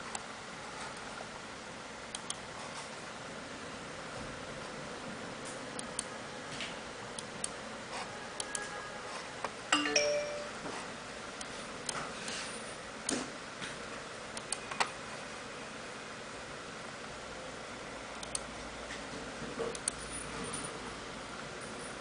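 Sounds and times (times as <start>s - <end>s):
computer mouse clicks: 2.1s - 2.4s, 8.4s - 8.7s, 14.4s - 14.9s, 18.1s - 18.5s, 19.7s - 20.0s
short electronic chime: 9.8s - 10.6s.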